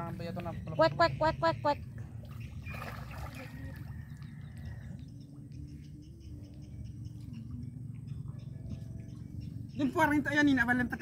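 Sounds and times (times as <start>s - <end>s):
faint wavering hum: 0.0s - 11.0s
water sloshing and splashing: 1.8s - 5.1s.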